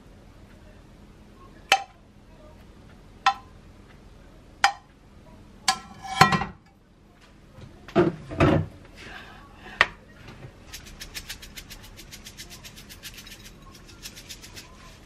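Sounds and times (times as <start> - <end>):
tongs clattering on plate: 5.7 - 6.5.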